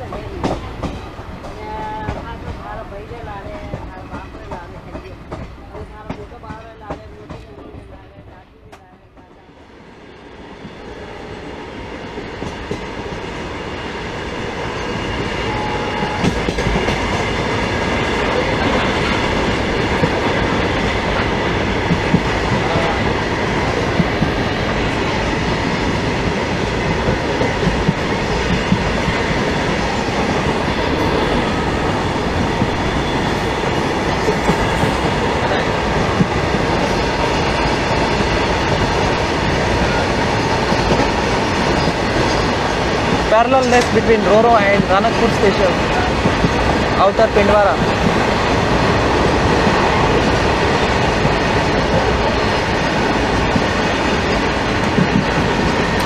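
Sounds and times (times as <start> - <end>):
train wheels rumbling on rails: 0.0 - 56.0
clacks over rail joints: 34.0 - 56.0.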